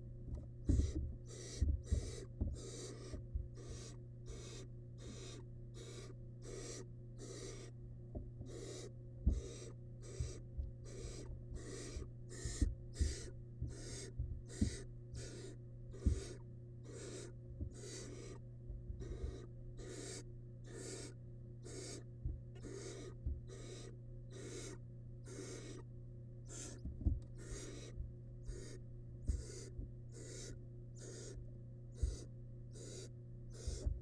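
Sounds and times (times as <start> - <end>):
low thumps in wooden nest box: 0.2 - 4.5, 8.1 - 19.5, 21.7 - 23.8, 26.5 - 30.6, 33.5 - 34.0
owl nestlings hissing calls: 0.6 - 7.8, 8.4 - 18.4, 19.0 - 34.0.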